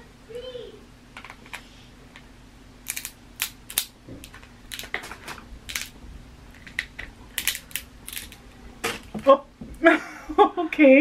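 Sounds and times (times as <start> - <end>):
crab shell cracking and snapping: 2.9 - 4.9, 5.7 - 6.0, 6.6 - 8.4.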